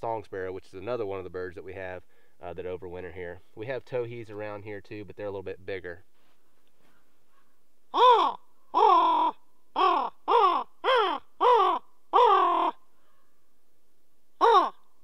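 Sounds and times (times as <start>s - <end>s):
raven cawing: 6.8s - 13.4s, 14.4s - 14.9s.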